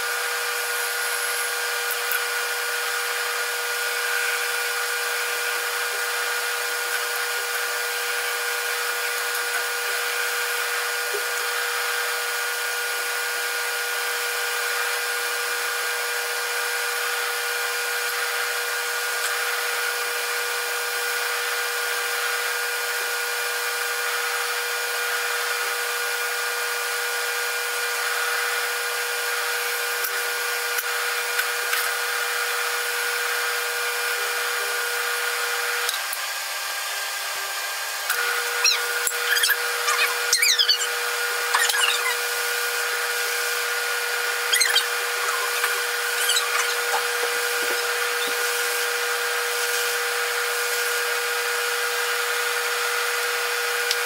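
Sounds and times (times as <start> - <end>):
drill press motor whining: 37.0 - 54.0
wire brush scrubbing metal: 38.2 - 51.0.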